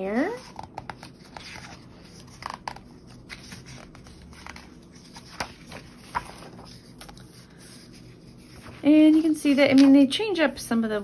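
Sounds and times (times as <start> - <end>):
paper pages being turned: 0.2 - 10.1
sharp paper crackles: 1.0 - 7.3.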